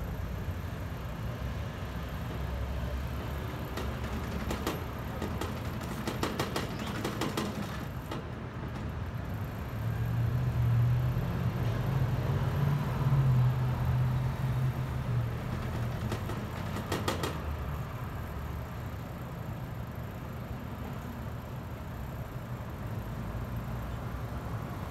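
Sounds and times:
street noise: 0:00.0 - 0:24.9
sharp rattling clicks: 0:03.3 - 0:08.9, 0:15.4 - 0:17.8.

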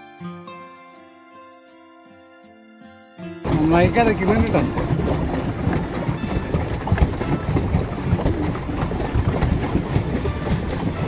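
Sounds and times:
paddle wheel churning water: 0:03.4 - 0:11.0
low knocks: 0:03.5 - 0:11.0.

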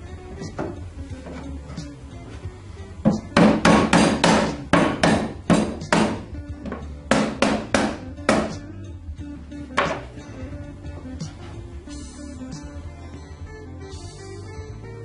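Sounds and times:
hammer blows: 0:03.0 - 0:08.7.

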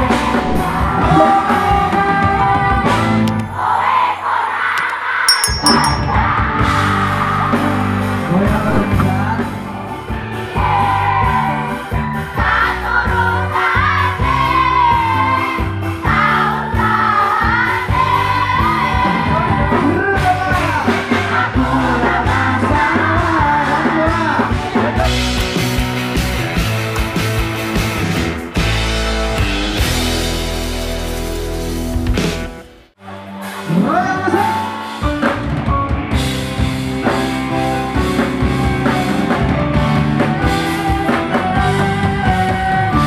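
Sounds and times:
live band music over loudspeakers: 0:00.0 - 0:03.5, 0:06.0 - 0:43.0
crowd singing along and cheering: 0:00.0 - 0:20.0, 0:20.6 - 0:24.9
lead vocal singing: 0:00.0 - 0:25.0, 0:40.4 - 0:43.0.

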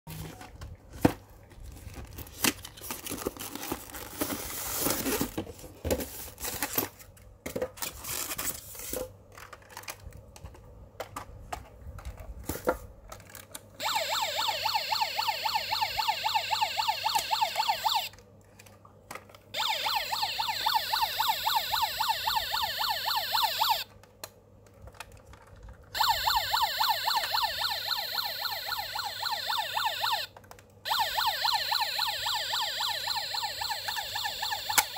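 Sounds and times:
cardboard and plastic rustling: 0:00.1 - 0:13.8, 0:24.6 - 0:26.0
toy electronic siren wailing: 0:13.8 - 0:18.2, 0:19.6 - 0:23.9, 0:26.0 - 0:30.3, 0:30.9 - 0:34.9.

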